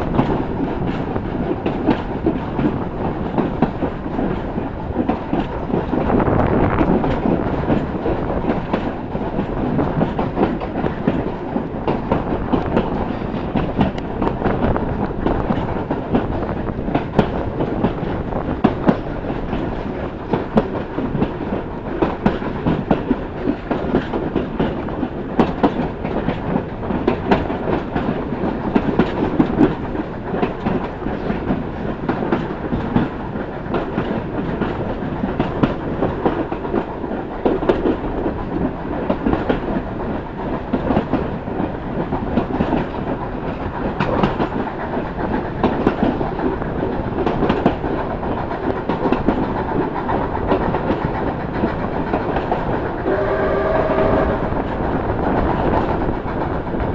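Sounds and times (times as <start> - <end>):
train carriage rumble: 0.0 - 56.9
wheels clacking on rails: 0.0 - 56.9.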